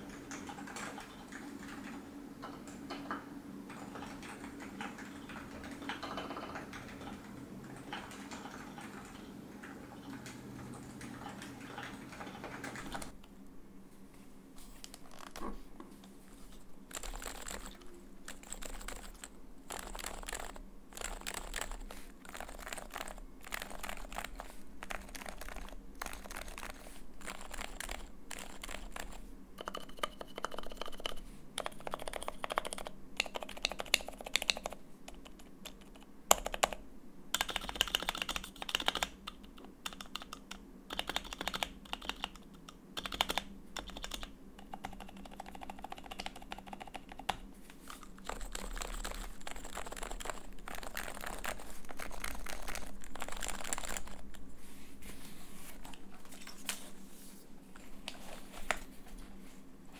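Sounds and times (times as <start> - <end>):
soft muted keyboard typing: 0.0 - 13.2, 16.5 - 54.5.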